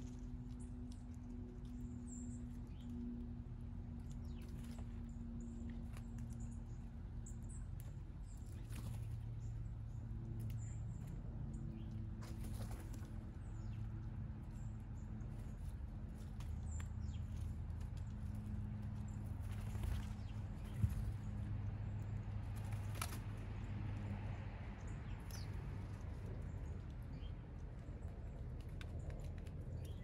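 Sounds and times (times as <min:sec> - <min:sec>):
birds chirping: 0:00.0 - 0:30.0
light clicks and patters: 0:00.0 - 0:30.0
steady low hum: 0:00.0 - 0:30.0.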